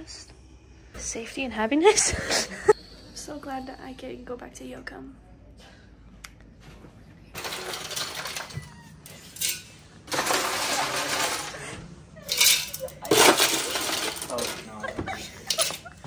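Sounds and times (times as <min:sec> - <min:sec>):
ice cubes clattering in a bin: 0:07.4 - 0:08.6, 0:09.4 - 0:11.6, 0:12.3 - 0:14.8.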